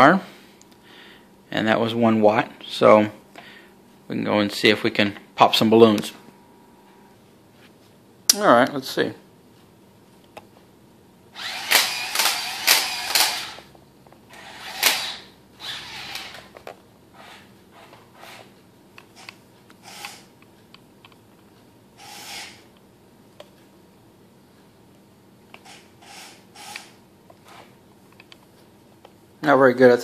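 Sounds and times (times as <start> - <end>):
toy robot motor whirring: 11.4 - 13.7, 14.3 - 16.5, 19.2 - 20.3, 22.0 - 22.7, 25.6 - 27.6.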